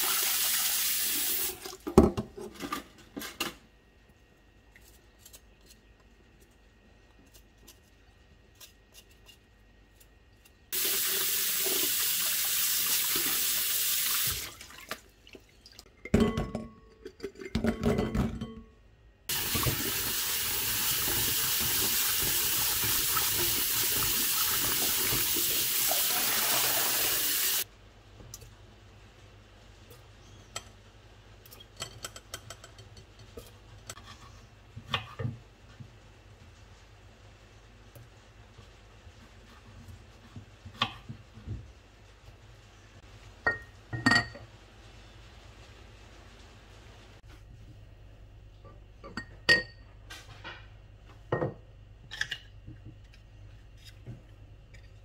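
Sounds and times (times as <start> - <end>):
tap water running into bowl: 19.3 - 27.6.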